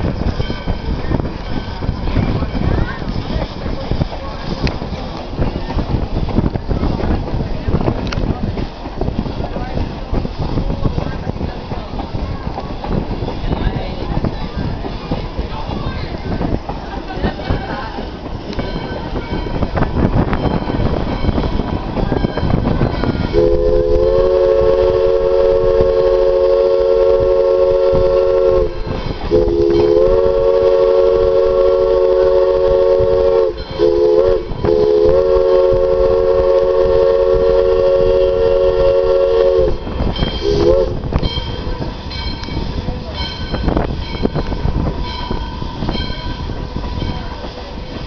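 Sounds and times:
train rumbling: 0:00.0 - 0:48.0
locomotive chime whistle: 0:22.4 - 0:47.5.

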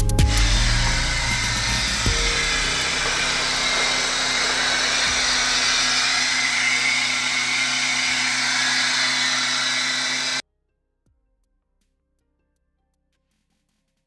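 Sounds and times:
loud hissing whir: 0:00.0 - 0:10.4
car engine running: 0:00.1 - 0:10.4.

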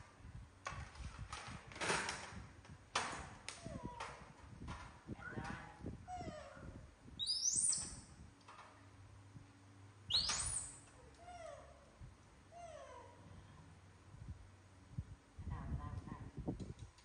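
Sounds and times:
baby monkeys calling: 0:07.2 - 0:08.0, 0:10.1 - 0:10.8.

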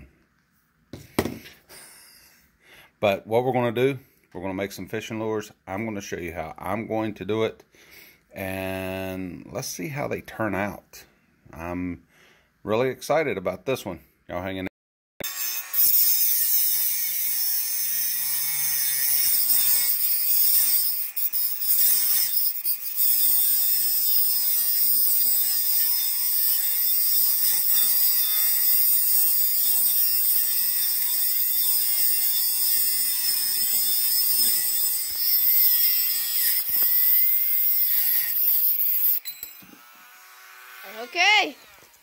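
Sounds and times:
rotary tool cutting metal: 0:15.2 - 0:42.0.

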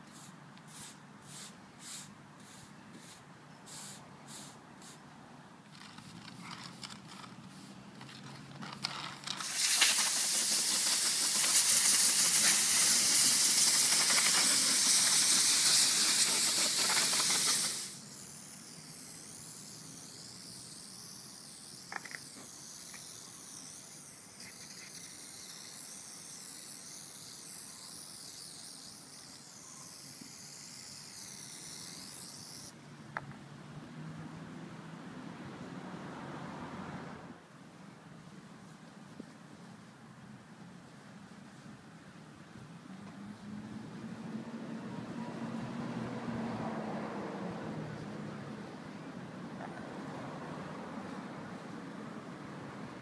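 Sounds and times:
stiff broom sweeping rubber: 0:00.0 - 0:05.0, 0:08.9 - 0:18.1
aerosol can spraying hiss: 0:00.1 - 0:05.0, 0:09.3 - 0:32.7.

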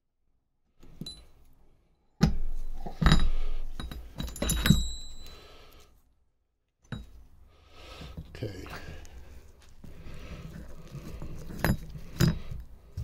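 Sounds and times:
metal gears clinking and knocking: 0:02.2 - 0:05.3.

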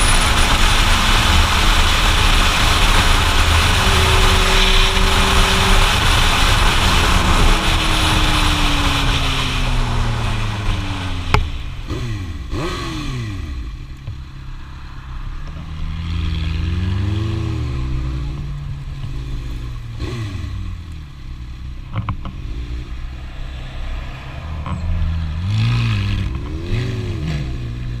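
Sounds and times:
wind rush: 0:00.0 - 0:11.8, 0:22.8 - 0:27.3
motorcycle engine revving: 0:00.0 - 0:14.4, 0:15.5 - 0:28.0.

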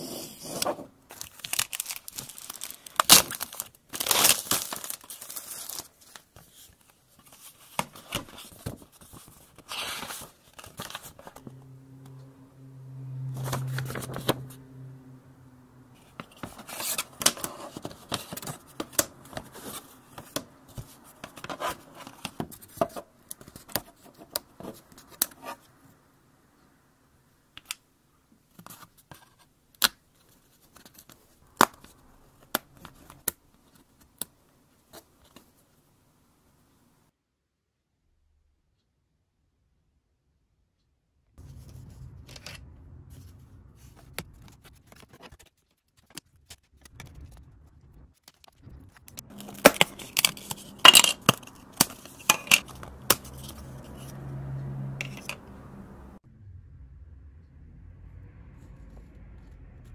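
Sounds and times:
plastic film crinkling: 0:01.1 - 0:11.4
low hum: 0:10.8 - 0:16.8, 0:41.4 - 0:44.8, 0:46.9 - 0:59.9.

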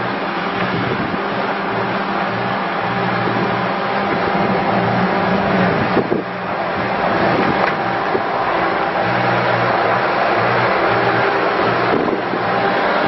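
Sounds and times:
diesel engine running: 0:00.0 - 0:13.0
loader driving over gravel: 0:00.0 - 0:13.0.

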